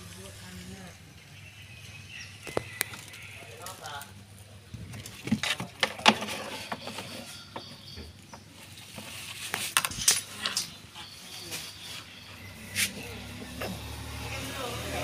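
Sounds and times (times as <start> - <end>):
knocks and rattles on plastic containers: 4.8 - 9.1.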